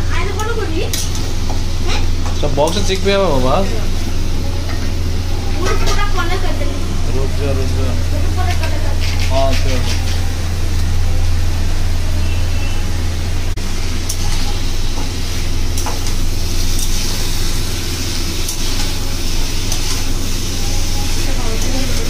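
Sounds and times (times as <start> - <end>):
faint sizzle: 0.0 - 22.0
steady low hum: 0.0 - 22.0
spatula scraping a pan: 8.5 - 10.2.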